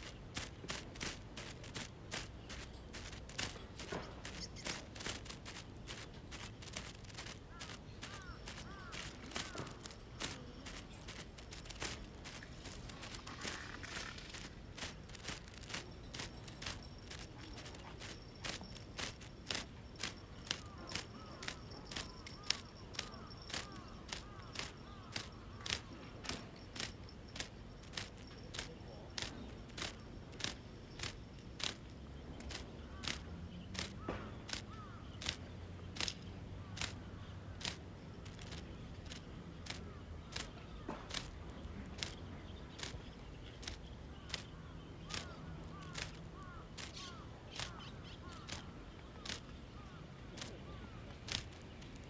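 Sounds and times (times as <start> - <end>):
fishing reel clicking: 0.0 - 3.6, 4.2 - 31.9, 32.5 - 33.2, 33.8 - 35.4, 37.6 - 41.4, 42.0 - 42.2, 45.1 - 46.2, 46.8 - 48.6.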